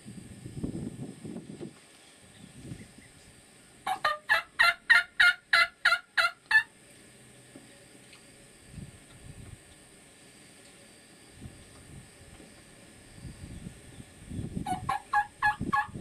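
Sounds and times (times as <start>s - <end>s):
turkey gobbling: 3.9s - 6.7s, 14.6s - 16.0s.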